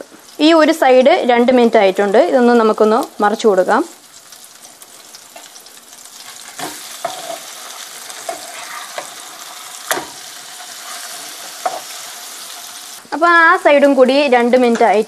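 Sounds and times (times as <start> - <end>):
fish sizzling in frying pan: 0.0 - 15.0
metal spatula scraping pan: 6.2 - 12.2.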